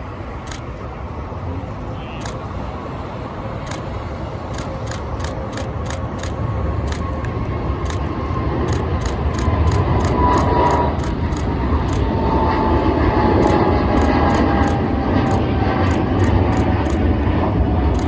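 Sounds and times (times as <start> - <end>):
jet engines rumbling: 0.0 - 18.0
camera shutter clicks: 0.5 - 0.8, 3.6 - 3.9, 4.5 - 7.1, 8.7 - 12.1.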